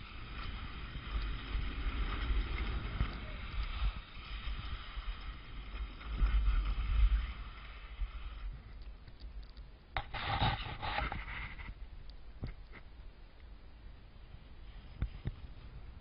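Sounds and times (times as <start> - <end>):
skis hissing over snow: 0.0 - 8.7
skis scraping across snow: 0.0 - 8.7, 10.0 - 11.8
wind buffeting microphone: 0.0 - 8.8.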